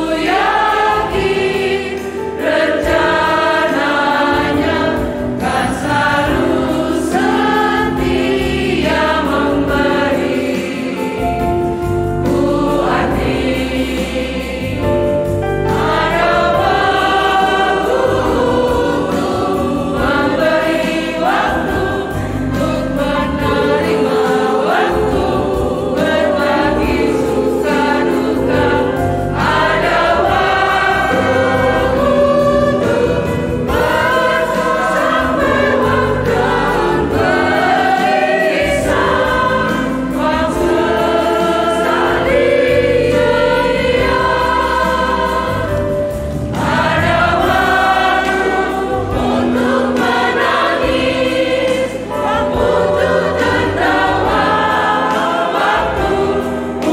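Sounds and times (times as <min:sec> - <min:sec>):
women's choir singing: 0:00.0 - 0:56.9.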